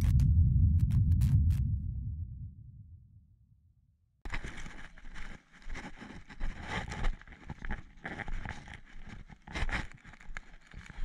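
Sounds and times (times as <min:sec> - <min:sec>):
clothing and gear rubbing: 0:04.3 - 0:11.0
footsteps on a woodland path: 0:04.3 - 0:11.0.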